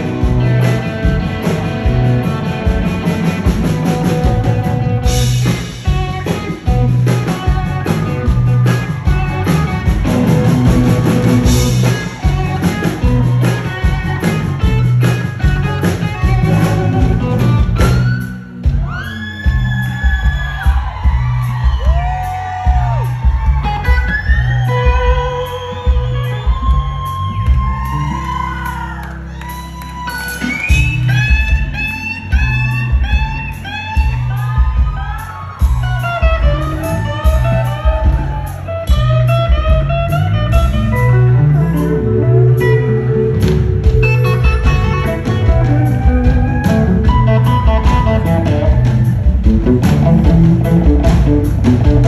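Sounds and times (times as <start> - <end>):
electric guitar bending notes: 0.0 - 18.9, 35.8 - 52.0
live rock band playing: 0.0 - 52.0
steady bass: 0.0 - 52.0.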